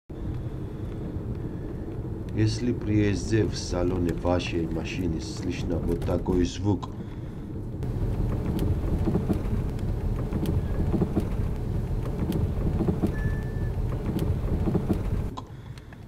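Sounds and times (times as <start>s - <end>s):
road rumble: 0.1s - 16.0s
steering rack knocking: 7.8s - 15.3s.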